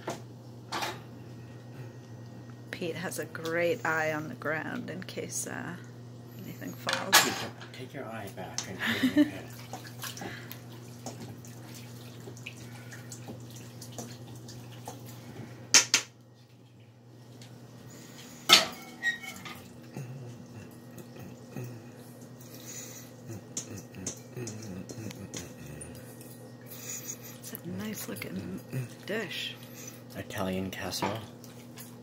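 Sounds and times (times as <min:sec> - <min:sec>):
low hum: 0:14.6 - 0:30.0
ladle clinking on pots: 0:18.5 - 0:19.6.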